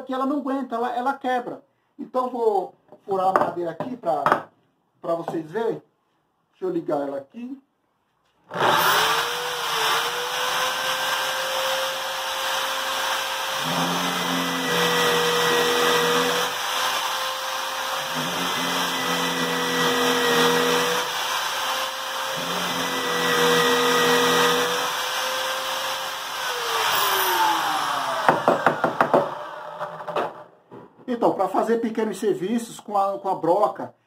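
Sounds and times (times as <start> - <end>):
drill bit boring into wood: 8.5 - 30.4
electric drill whining: 8.5 - 30.4.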